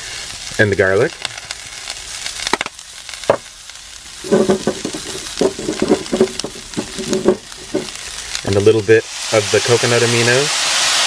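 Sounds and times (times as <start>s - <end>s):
food sizzling in a frying pan: 0.0s - 11.0s
quick rattling knocks: 4.2s - 7.9s.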